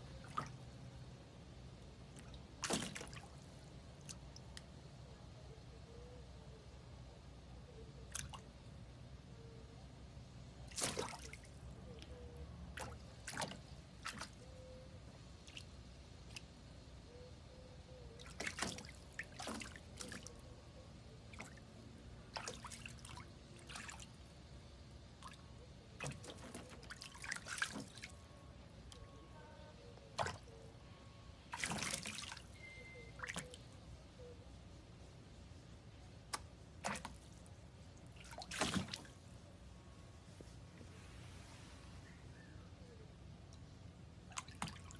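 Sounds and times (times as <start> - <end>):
water splashing and dripping: 2.1 - 3.4, 10.7 - 11.5, 12.7 - 14.4, 18.2 - 20.4, 22.3 - 24.1, 26.0 - 28.2, 31.5 - 32.5, 36.3 - 37.4, 38.0 - 39.2, 44.3 - 44.9.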